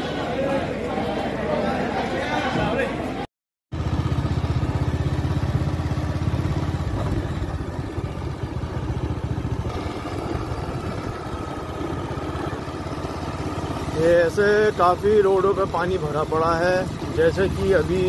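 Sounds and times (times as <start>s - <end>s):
motorcycle engine running: 3.7s - 18.0s.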